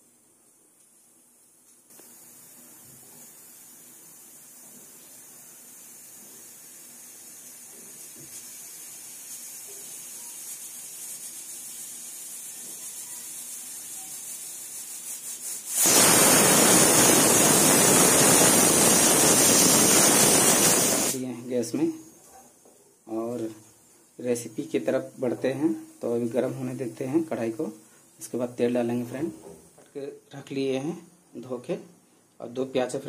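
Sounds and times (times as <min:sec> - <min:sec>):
pressure cooker steam whistle: 0:12.7 - 0:14.3, 0:15.7 - 0:21.2
pressure cooker hissing: 0:15.6 - 0:21.3.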